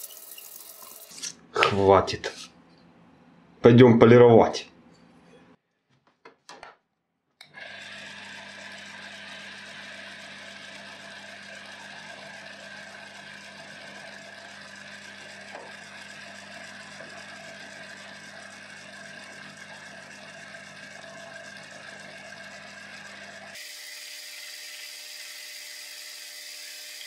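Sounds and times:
lathe motor hum with whine: 0:07.4 - 0:27.0
polishing wheel whirring: 0:07.5 - 0:27.0.

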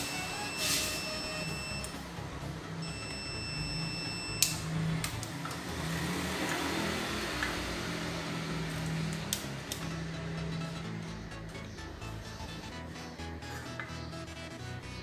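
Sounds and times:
multimeter high beep: 0:00.0 - 0:02.0, 0:02.8 - 0:04.6.

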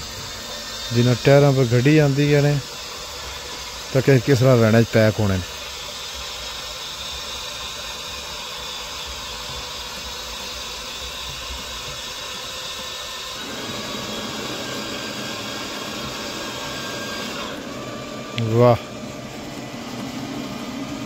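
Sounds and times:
steady hiss: 0:00.0 - 0:14.2.

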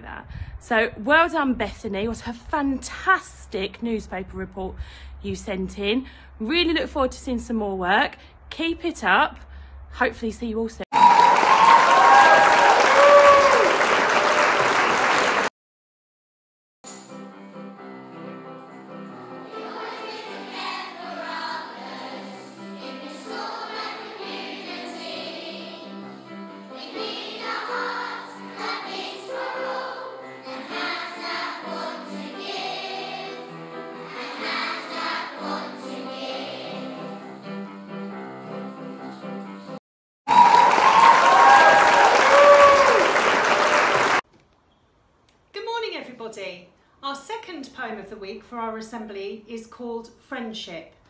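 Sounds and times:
whoops: 0:10.9 - 0:14.8, 0:40.3 - 0:44.2
crowd cheering and applause: 0:10.9 - 0:15.5, 0:40.3 - 0:44.2
choir singing with music: 0:17.3 - 0:39.8.

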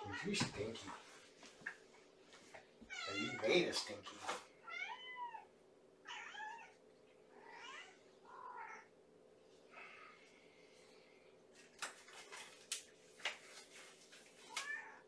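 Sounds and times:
cat meowing: 0:02.9 - 0:03.6, 0:04.6 - 0:06.8, 0:07.4 - 0:08.9.

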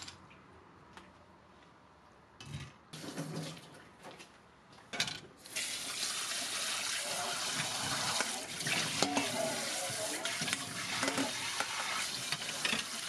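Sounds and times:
tap water running into steel bowl: 0:05.6 - 0:13.0.

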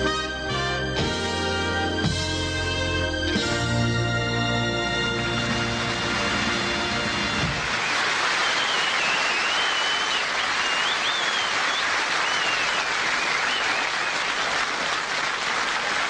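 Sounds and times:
audience applauding: 0:05.6 - 0:16.0
high wavering whistle: 0:08.4 - 0:14.2.

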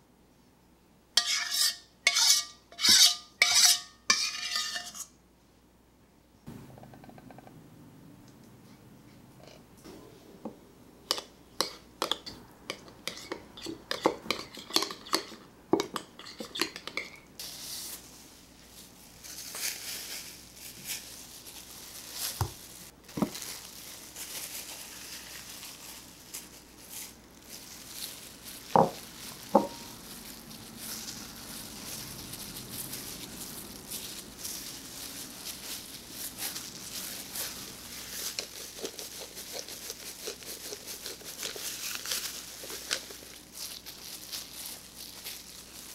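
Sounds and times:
metal spoon scraping glass bowl: 0:01.2 - 0:05.1
wet handling sounds: 0:19.2 - 0:45.9.

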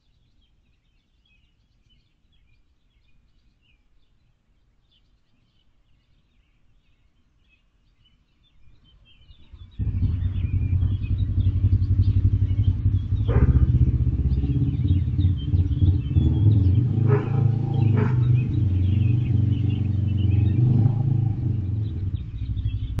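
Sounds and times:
faint bird chirps: 0:00.0 - 0:23.0
motor droning: 0:09.8 - 0:23.0.

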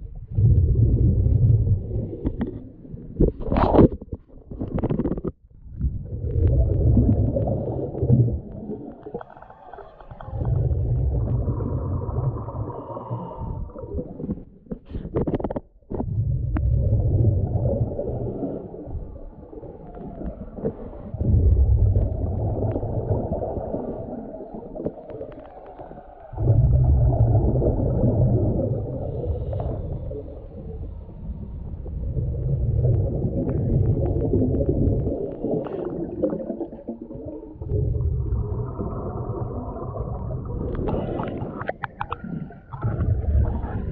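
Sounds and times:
rumbling exhaust bubbles: 0:00.0 - 0:14.3, 0:15.3 - 0:25.4, 0:26.3 - 0:43.9
diver breathing underwater: 0:06.6 - 0:15.6, 0:25.7 - 0:32.0.

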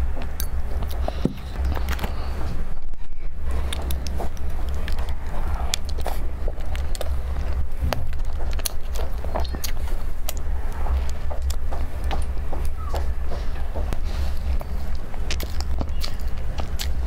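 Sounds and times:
biting and chewing: 0:00.0 - 0:17.0
steady low rumble: 0:00.0 - 0:17.0
bun tearing with crackly clicks: 0:03.7 - 0:10.8.

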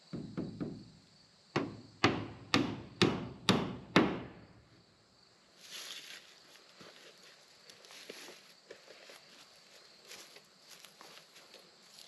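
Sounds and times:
hammer nailing wooden board: 0:00.1 - 0:00.8, 0:01.6 - 0:04.4.

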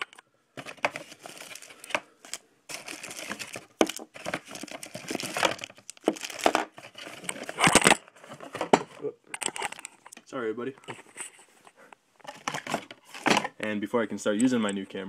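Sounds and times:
plastic bags crinkling: 0:00.0 - 0:08.7.

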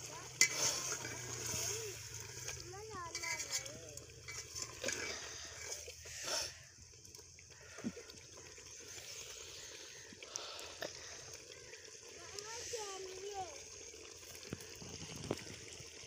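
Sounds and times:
ladle scraping a metal pot: 0:00.0 - 0:06.5
pot simmering with faint hiss: 0:00.0 - 0:16.0.

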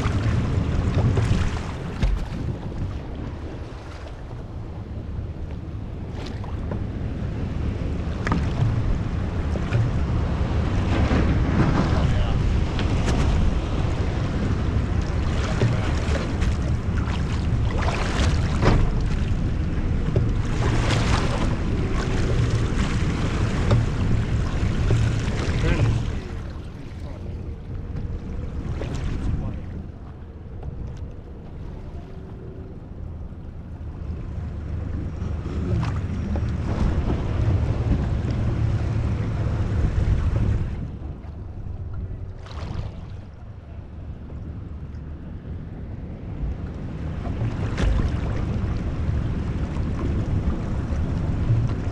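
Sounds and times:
water splashes: 0:00.0 - 0:32.9, 0:34.0 - 0:45.1, 0:46.0 - 0:51.9
water sloshing and slapping: 0:00.0 - 0:51.9
wind buffeting microphone: 0:00.0 - 0:51.9
brief splashes: 0:42.3 - 0:43.4.

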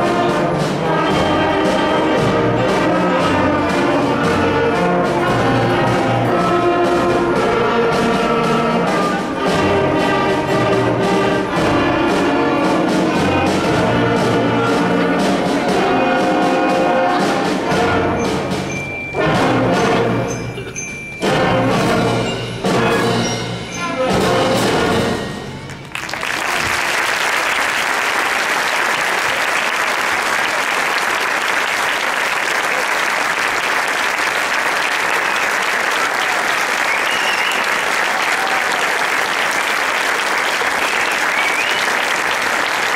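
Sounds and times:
concert band chords: 0:00.0 - 0:42.9
audience applauding: 0:25.7 - 0:42.9.

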